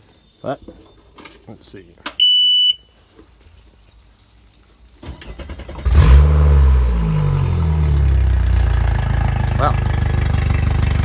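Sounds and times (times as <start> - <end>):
warning horn beep: 2.2 - 3.0
outboard engine revving and idling: 5.4 - 11.0.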